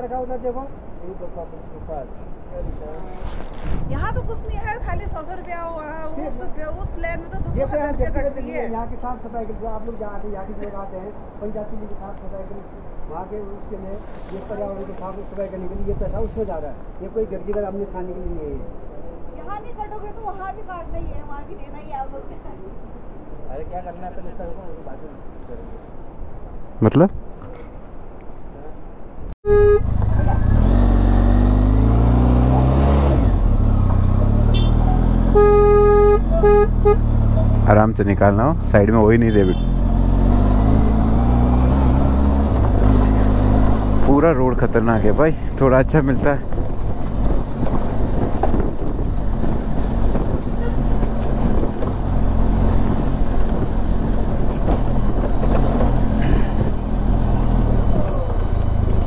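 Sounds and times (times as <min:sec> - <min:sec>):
car horn beeping: 0:29.4 - 0:30.7, 0:34.5 - 0:37.6, 0:39.2 - 0:39.9, 0:50.5 - 0:51.0
vehicle engine running: 0:29.5 - 0:38.9
vehicle engine pulling away: 0:29.7 - 0:59.0.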